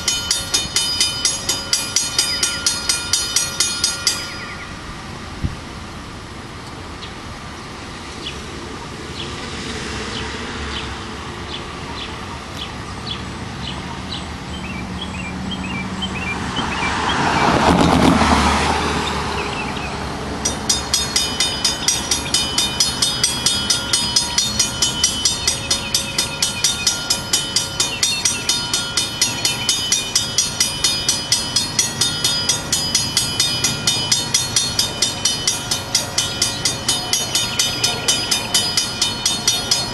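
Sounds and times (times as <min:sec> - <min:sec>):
crossing warning bell clanging: 0:00.0 - 0:06.0, 0:16.2 - 0:39.9
diesel locomotive rumble: 0:00.0 - 0:09.5, 0:10.1 - 0:39.9.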